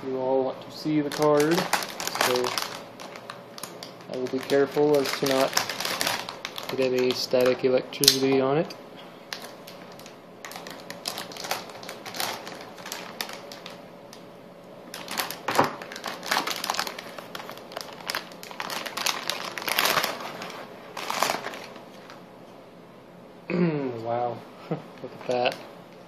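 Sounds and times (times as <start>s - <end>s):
plastic bag crinkling and rustling: 0.8s - 8.2s, 9.3s - 13.8s, 14.9s - 22.2s.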